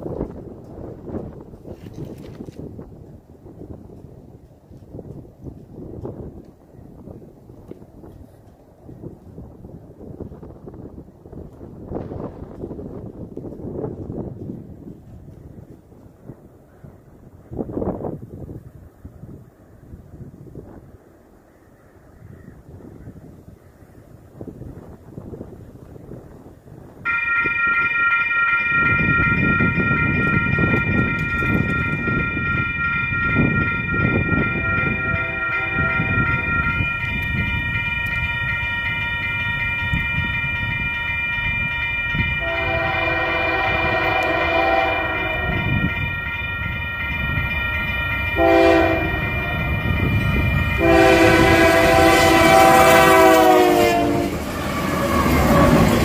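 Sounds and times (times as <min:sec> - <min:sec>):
train rumble: 0:26.9 - 0:56.0
crossing bell ringing: 0:27.1 - 0:56.0
train horn blasts: 0:27.1 - 0:56.0.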